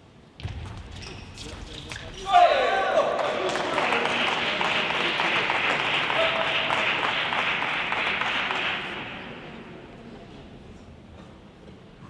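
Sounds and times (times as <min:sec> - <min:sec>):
crowd applauding: 0:02.9 - 0:09.5.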